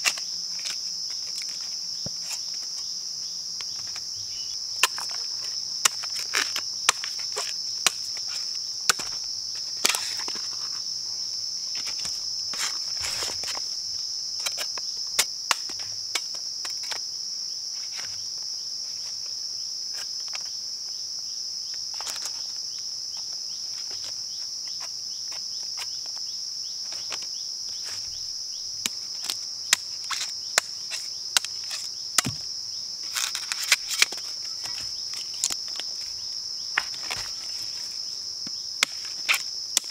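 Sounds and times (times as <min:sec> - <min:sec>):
insects droning: 0:00.0 - 0:39.9
machete chopping bamboo: 0:04.8 - 0:05.2, 0:05.8 - 0:08.2, 0:08.9 - 0:10.4, 0:14.4 - 0:17.0, 0:28.8 - 0:32.5, 0:38.8 - 0:39.9.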